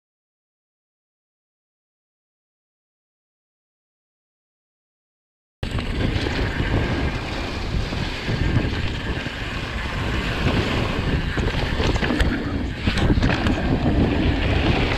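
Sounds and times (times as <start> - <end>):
bike rattling: 5.6 - 14.9
bike tyres rumbling on planks: 5.6 - 14.9
wind noise on microphone: 5.6 - 14.9.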